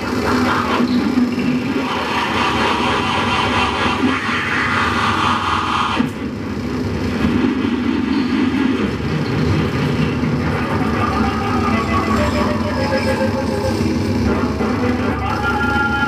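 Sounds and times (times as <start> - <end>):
harsh noise music: 1.6 - 6.1.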